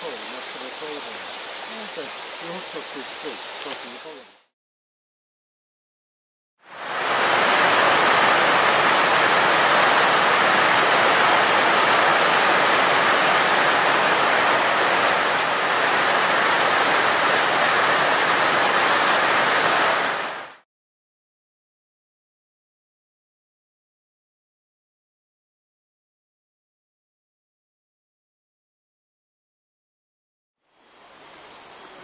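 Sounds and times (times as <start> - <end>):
heavy rain pouring: 0.0 - 4.3, 6.7 - 20.6.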